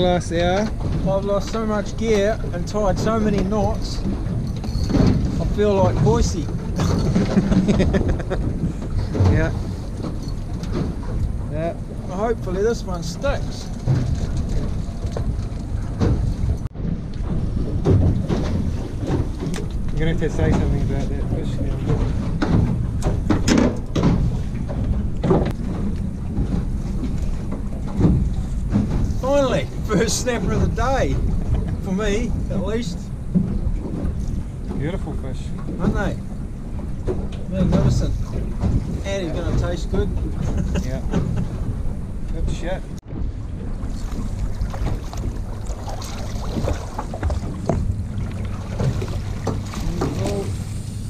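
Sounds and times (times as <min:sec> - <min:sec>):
boat engine rumble: 0:00.0 - 0:51.0
knocks and splashes: 0:00.0 - 0:51.0
water slapping hull: 0:00.0 - 0:51.0
wind on microphone: 0:00.0 - 0:51.0
fish knocking and slapping on deck: 0:21.7 - 0:29.2, 0:43.9 - 0:50.6.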